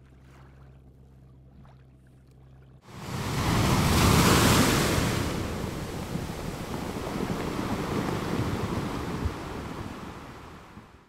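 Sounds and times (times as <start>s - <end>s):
low wind rumble: 2.8s - 11.0s
sea waves washing: 2.8s - 11.0s.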